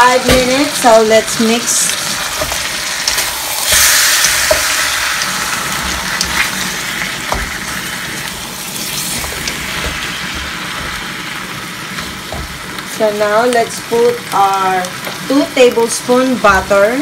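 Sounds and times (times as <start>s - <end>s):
meat sizzling in a wok: 0.0s - 17.0s
wooden spatula knocking pan: 7.2s - 7.7s, 9.1s - 11.4s, 12.0s - 12.6s.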